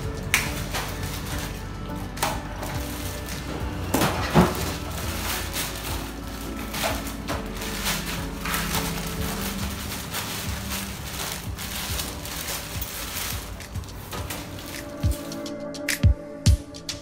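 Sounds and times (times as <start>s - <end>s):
plastic bag rustling and crinkling: 0.0s - 15.6s
soft background music: 0.0s - 17.0s.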